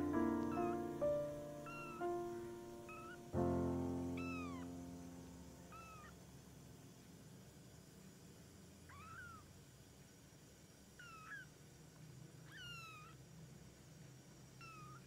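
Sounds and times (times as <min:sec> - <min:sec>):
kittens mewing: 0:00.0 - 0:03.3, 0:04.2 - 0:04.7, 0:05.7 - 0:06.2, 0:08.9 - 0:09.5, 0:11.0 - 0:11.5, 0:12.4 - 0:13.2, 0:14.6 - 0:15.0.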